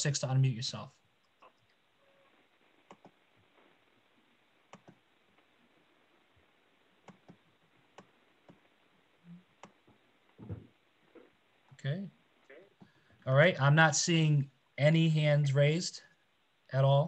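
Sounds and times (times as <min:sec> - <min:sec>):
faint clicks: 0:01.2 - 0:03.8, 0:04.7 - 0:05.5, 0:07.0 - 0:08.7.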